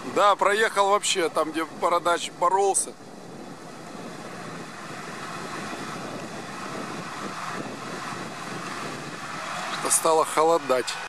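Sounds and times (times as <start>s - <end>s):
distant vehicle engine running: 3.0s - 11.0s.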